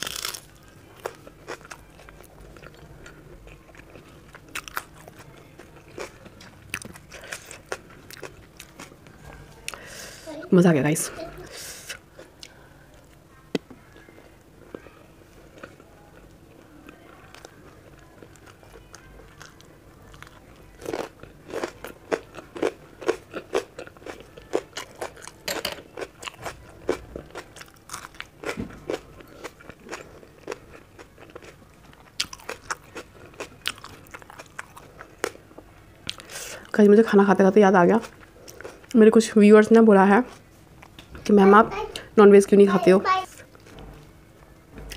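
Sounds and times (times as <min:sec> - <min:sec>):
person chewing food: 0:00.0 - 0:09.9, 0:15.6 - 0:36.7, 0:38.1 - 0:39.0.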